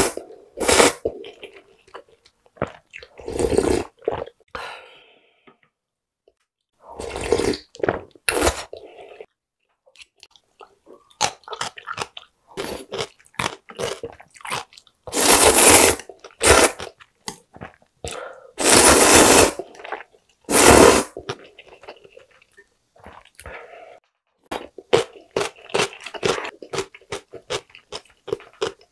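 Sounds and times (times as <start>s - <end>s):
slurping noodles: 0.0s - 1.6s, 3.0s - 4.3s, 6.8s - 9.3s, 13.8s - 17.0s, 18.6s - 22.4s.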